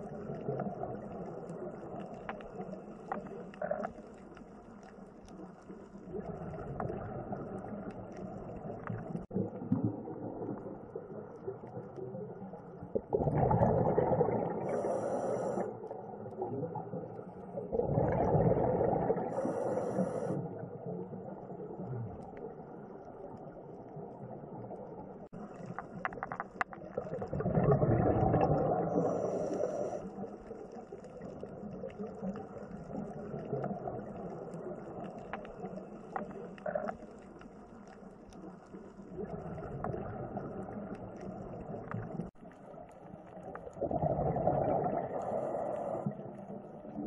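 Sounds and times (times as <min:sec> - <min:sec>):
low underwater background: 0:00.0 - 0:47.0
diver exhaling bubbles: 0:13.0 - 0:15.8, 0:17.6 - 0:20.5, 0:27.0 - 0:30.0, 0:43.6 - 0:47.0.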